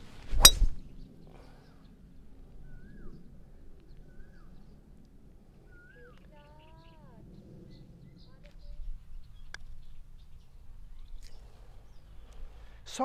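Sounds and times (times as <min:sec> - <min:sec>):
faint outdoor background: 0:00.0 - 0:13.0
bird whistling: 0:02.6 - 0:03.2, 0:04.1 - 0:04.6, 0:05.7 - 0:07.1.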